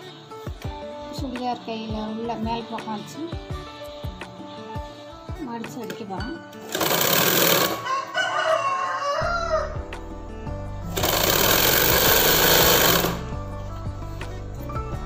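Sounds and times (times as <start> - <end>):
background music: 0.0 - 15.0
sewing machine running: 6.7 - 7.9, 10.9 - 13.3
rooster crowing: 7.3 - 9.9.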